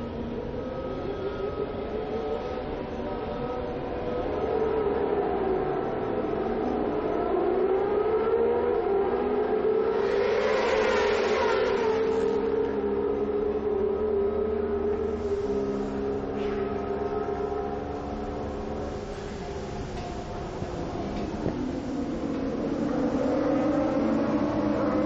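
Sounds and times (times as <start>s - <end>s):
motorcycles accelerating hard: 9.8s - 13.0s, 20.2s - 25.0s.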